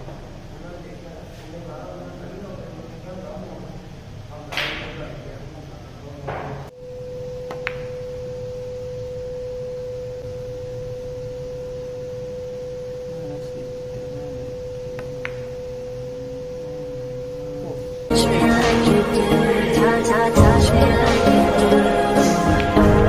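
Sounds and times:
steady pure tone: 6.7s - 23.0s.

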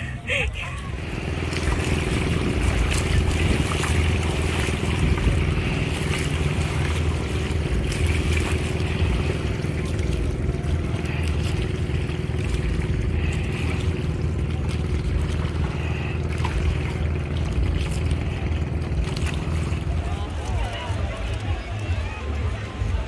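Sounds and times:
water splashing against hull: 0.0s - 23.0s
wind buffeting microphone: 1.0s - 10.8s.

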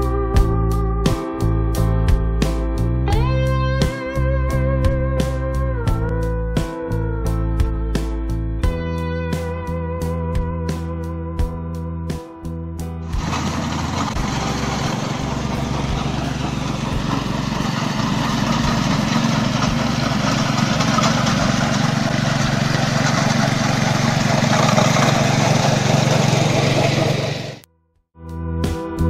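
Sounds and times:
small petrol engine drone: 13.1s - 27.7s.

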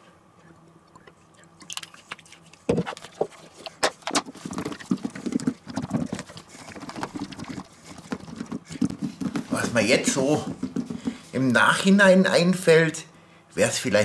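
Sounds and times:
potatoes tumbling in plastic box: 2.7s - 11.9s.

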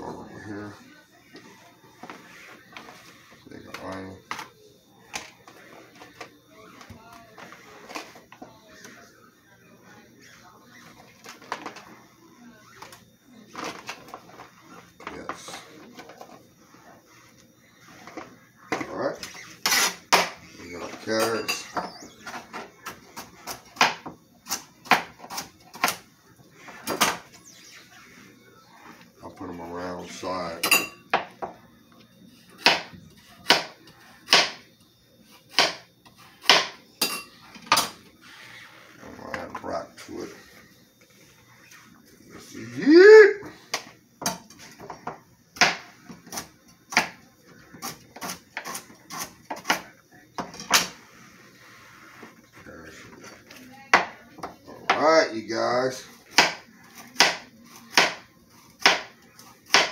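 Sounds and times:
knife chopping on cutting board: 32.6s - 34.6s, 35.5s - 35.8s, 56.3s - 58.2s, 58.8s - 59.1s, 59.7s - 59.9s.

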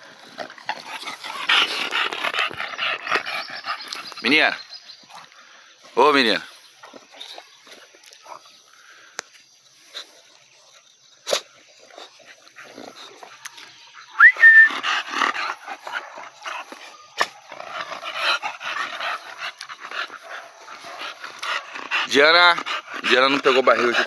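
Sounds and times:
dog whining: 14.2s - 15.1s.

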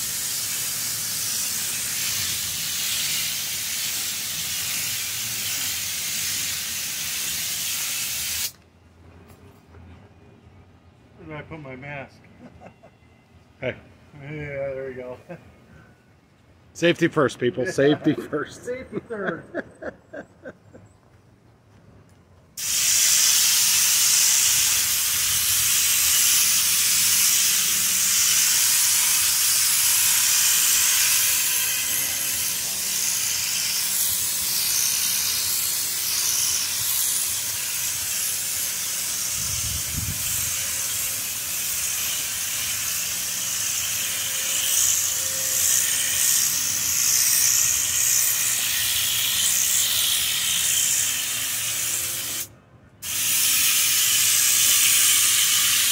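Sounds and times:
spray gun hissing: 0.0s - 8.5s, 22.6s - 55.9s.

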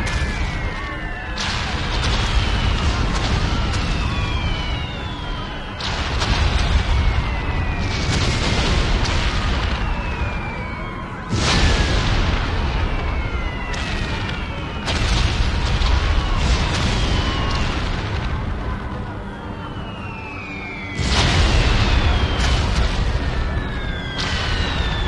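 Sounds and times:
sudden loud blasts: 0.0s - 19.4s, 21.0s - 25.0s
explosions rumbling: 0.0s - 25.0s
falling whistles: 19.3s - 25.0s.

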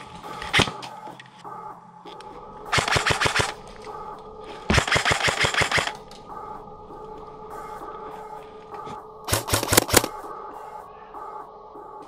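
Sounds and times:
airsoft gun firing: 2.7s - 3.6s, 4.7s - 6.0s, 9.3s - 10.2s.

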